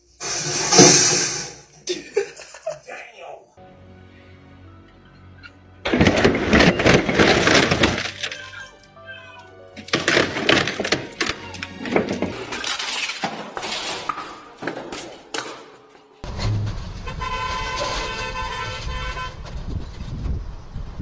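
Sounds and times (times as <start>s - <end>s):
sharp knocks and clatters: 5.8s - 8.4s, 9.8s - 18.0s
traffic noise: 16.1s - 21.0s
vehicle horn blast: 17.0s - 19.5s.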